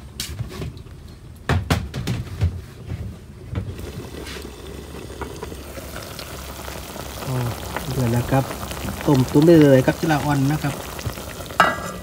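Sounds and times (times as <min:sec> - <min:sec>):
sharp knocks and clatters: 0:00.2 - 0:02.6.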